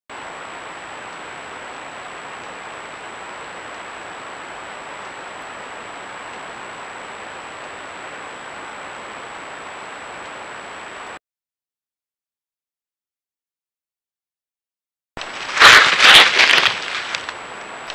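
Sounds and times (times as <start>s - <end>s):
high steady whine: 0.1s - 11.2s, 15.2s - 17.9s
microphone hiss: 0.1s - 11.2s, 15.2s - 17.9s.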